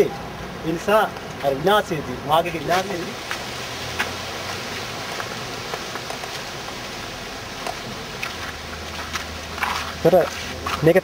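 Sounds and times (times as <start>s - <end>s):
outdoor background hiss: 0.0s - 11.0s.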